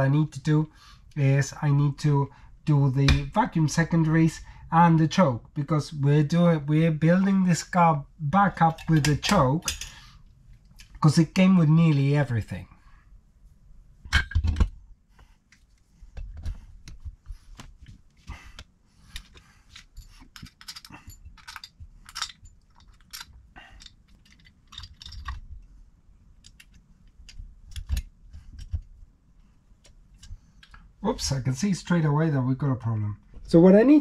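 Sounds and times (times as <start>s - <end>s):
small metal parts clinking: 19.1s - 25.5s.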